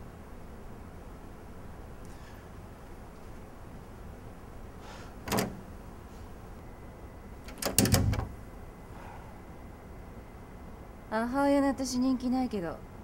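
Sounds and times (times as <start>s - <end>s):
low room hum: 0.0s - 13.0s
door clacking: 5.2s - 5.6s, 7.4s - 8.4s
door knocks and clicks shutting: 5.2s - 5.7s, 7.4s - 8.4s.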